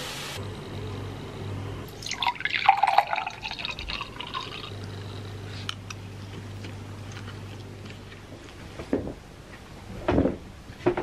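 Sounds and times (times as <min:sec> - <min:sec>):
low steady hum: 0:00.0 - 0:11.0
drink pouring into glass: 0:01.9 - 0:05.2.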